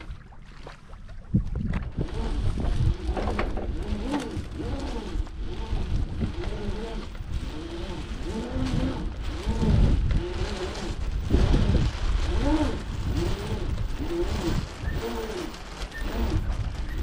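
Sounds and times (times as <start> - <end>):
water noise: 0.0 - 17.0
wind: 0.0 - 17.0
short squeaks: 14.2 - 17.0.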